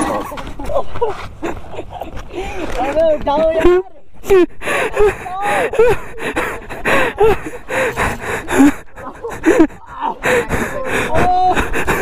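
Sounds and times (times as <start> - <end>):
man gasping and breathing hard: 4.2 - 12.0.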